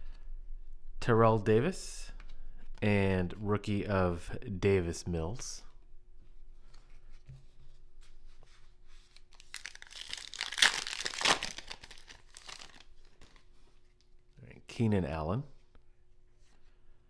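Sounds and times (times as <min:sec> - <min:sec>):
wrapper tearing and crinkling: 0:09.3 - 0:13.4.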